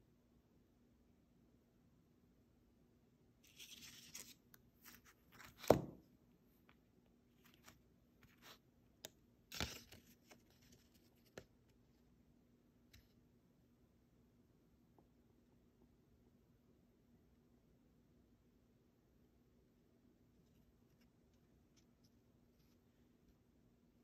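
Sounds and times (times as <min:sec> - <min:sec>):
rustling: 0:03.4 - 0:05.9
paper rustling: 0:03.5 - 0:06.0, 0:07.3 - 0:08.6, 0:09.5 - 0:11.5.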